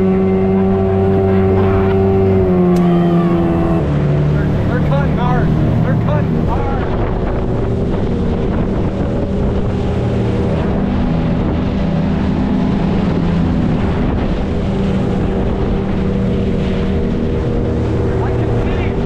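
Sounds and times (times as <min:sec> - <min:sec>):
outboard motor at full throttle: 0:00.0 - 0:19.0.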